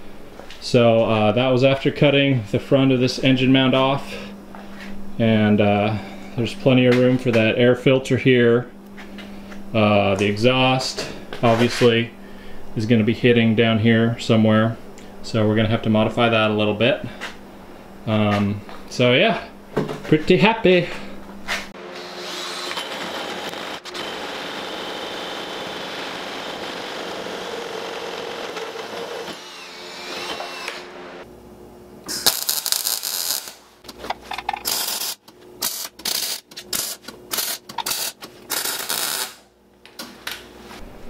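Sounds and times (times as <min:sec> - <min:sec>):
power tool running: 0:21.8 - 0:31.3
welder welding bursts: 0:32.1 - 0:33.8, 0:34.7 - 0:39.5.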